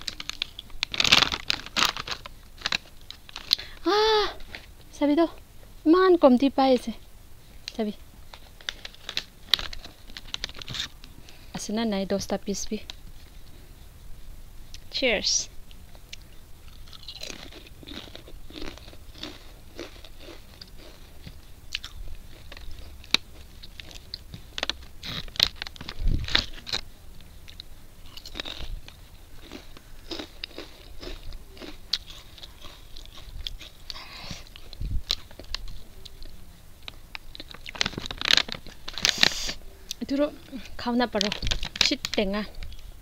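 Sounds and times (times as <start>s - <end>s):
chips crunching while chewed: 0.0s - 3.8s, 8.4s - 11.0s, 16.1s - 26.9s, 27.5s - 36.3s, 36.9s - 39.6s.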